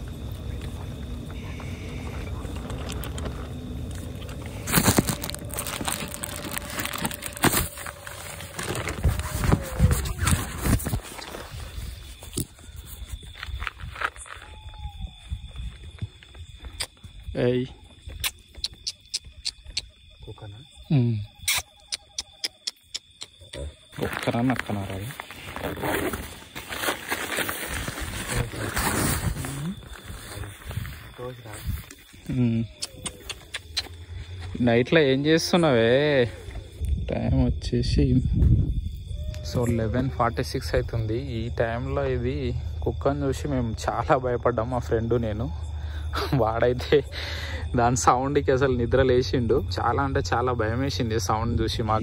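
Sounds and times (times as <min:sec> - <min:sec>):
faint steady tone: 0:00.0 - 0:05.2
crunching crinkling handling noise: 0:00.0 - 0:14.7, 0:23.9 - 0:32.2.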